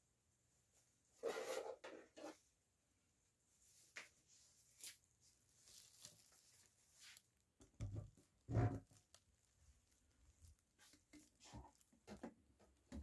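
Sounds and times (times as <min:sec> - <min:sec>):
rubbing and rustling: 0:03.5 - 0:12.8.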